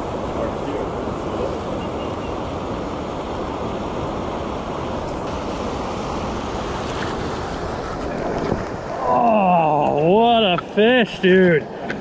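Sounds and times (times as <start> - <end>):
wind buffeting microphone: 0.0 - 9.2
river water rushing over weir: 0.0 - 12.0.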